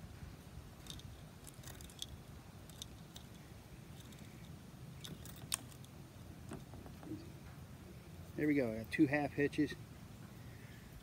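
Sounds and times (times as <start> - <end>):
fishing line clicking: 0.8 - 6.0.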